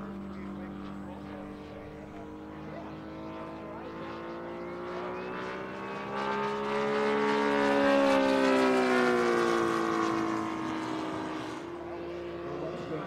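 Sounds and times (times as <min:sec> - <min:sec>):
model plane engine flying past: 0:00.0 - 0:13.0.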